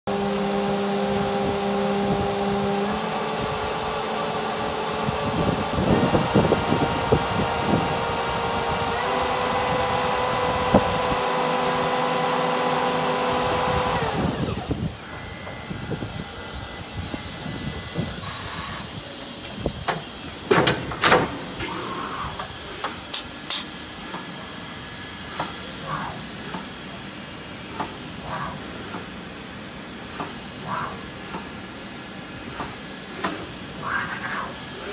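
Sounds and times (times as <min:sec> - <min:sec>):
machine whining tones: 0:00.1 - 0:23.2
steady hiss: 0:14.9 - 0:34.9
sharp clicks and knocks: 0:19.8 - 0:21.8.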